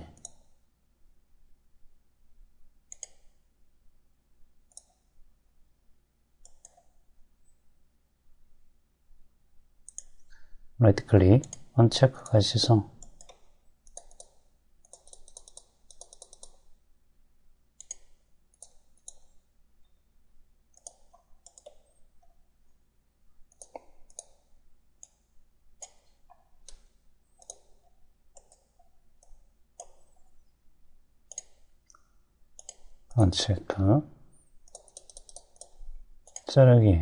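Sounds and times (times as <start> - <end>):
computer mouse clicks: 0.1 - 0.6, 2.9 - 3.4, 4.7 - 5.1, 6.4 - 7.6, 9.8 - 10.6, 11.4 - 12.4, 13.0 - 16.8, 17.8 - 20.0, 20.7 - 22.4, 23.5 - 30.5, 31.3 - 33.2, 34.6 - 36.5.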